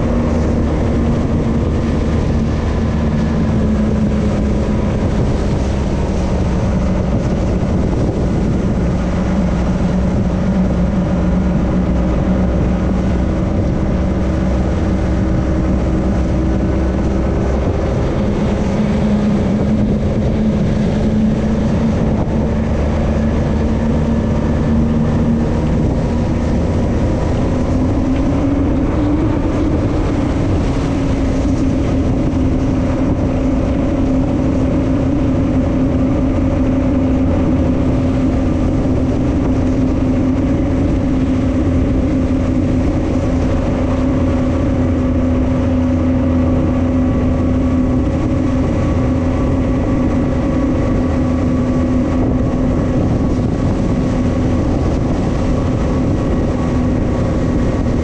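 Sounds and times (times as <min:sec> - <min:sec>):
speedboat engine running: 0:00.0 - 0:58.0
water rushing: 0:00.0 - 0:58.0
wind: 0:00.0 - 0:58.0.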